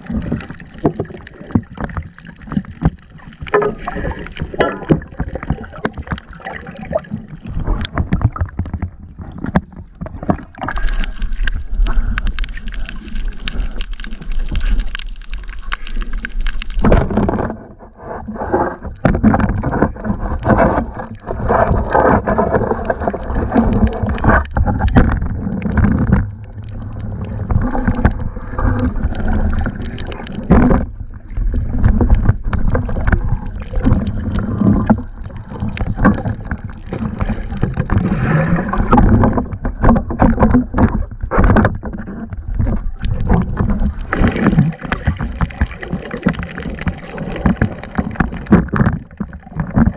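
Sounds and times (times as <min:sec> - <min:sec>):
water sloshing and gurgling: 0:00.0 - 0:49.9.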